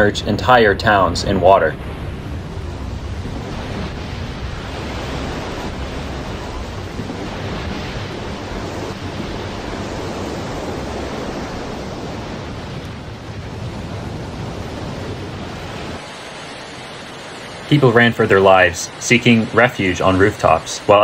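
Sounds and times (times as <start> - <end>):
deep rumble: 0.0 - 16.0
rush of seawater: 0.0 - 21.0
wind: 0.0 - 21.0.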